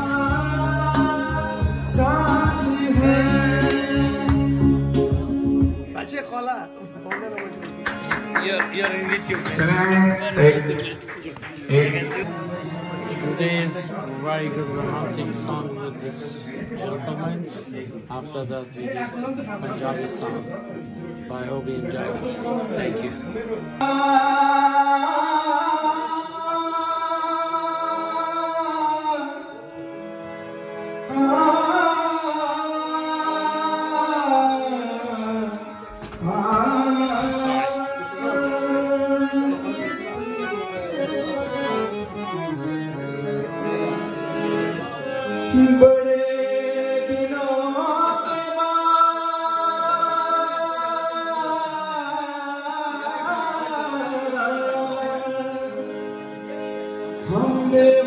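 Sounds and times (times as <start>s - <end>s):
man singing slow melody: 0.0s - 6.0s, 23.8s - 29.8s, 31.0s - 40.1s, 45.1s - 56.2s, 57.2s - 58.0s
harmonium: 0.0s - 58.0s.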